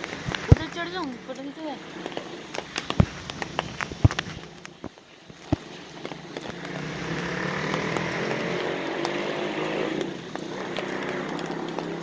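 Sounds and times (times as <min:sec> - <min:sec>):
small engine running: 0:06.0 - 0:12.0.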